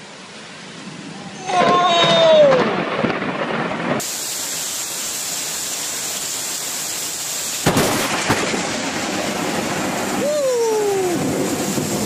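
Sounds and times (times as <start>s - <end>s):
heavy rain pouring: 0.0s - 12.0s
low thunder rumble: 0.7s - 4.1s, 7.6s - 12.0s
thunder crack: 1.5s - 4.1s, 7.6s - 12.0s.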